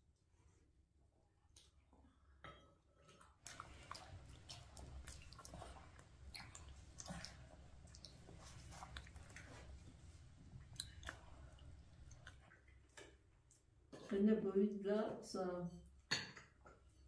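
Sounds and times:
people chewing: 0:03.2 - 0:13.6.

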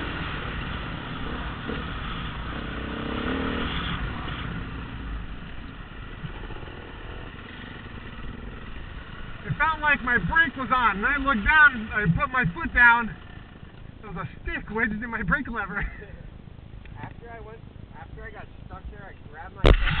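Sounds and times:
dirt bike engine revving: 0:00.0 - 0:13.8.

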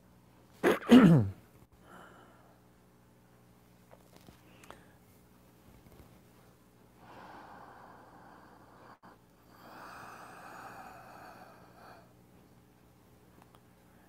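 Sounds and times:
man breathing slowly: 0:07.0 - 0:12.2.

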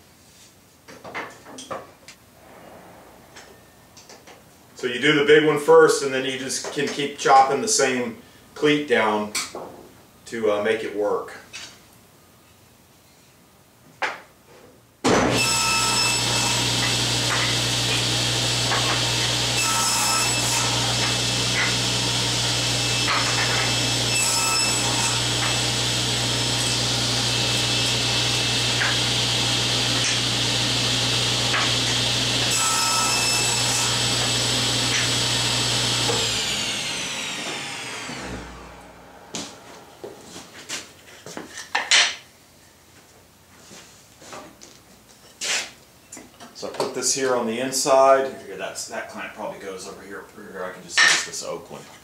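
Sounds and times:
power tool motor humming: 0:15.8 - 0:40.3.

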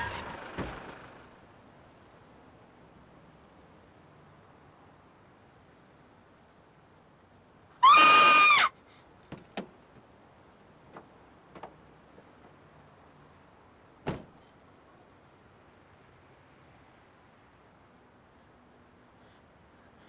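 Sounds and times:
vehicle horn blast: 0:07.8 - 0:08.7
truck cab door clicks and knocks: 0:14.1 - 0:14.3.

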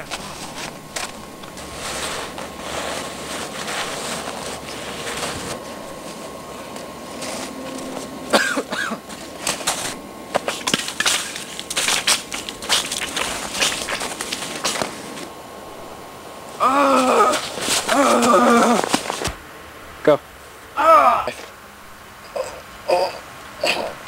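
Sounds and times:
footsteps crunching through snow: 0:00.0 - 0:16.1, 0:16.9 - 0:19.4.

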